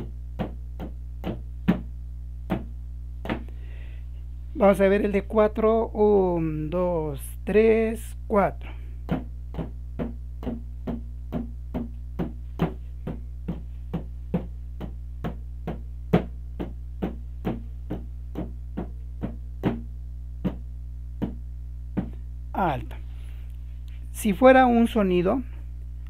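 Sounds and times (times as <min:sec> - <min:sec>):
sharp percussive taps: 0:00.0 - 0:03.5, 0:09.0 - 0:21.4, 0:22.0 - 0:22.2
low steady hum: 0:00.0 - 0:26.0.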